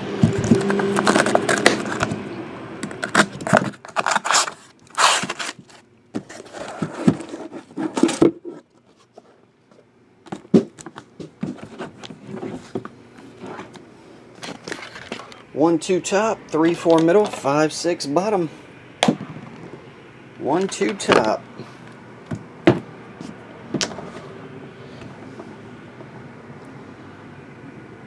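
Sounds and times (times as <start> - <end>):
cardboard box being opened: 0.2 - 2.2, 2.9 - 8.6.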